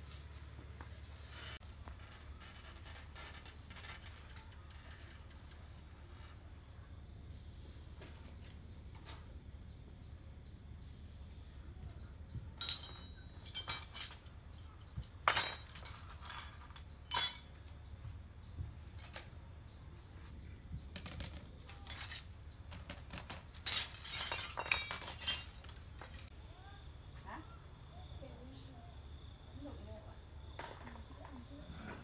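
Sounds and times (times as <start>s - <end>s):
metal tools clinking on concrete: 12.6s - 17.8s, 21.0s - 26.4s.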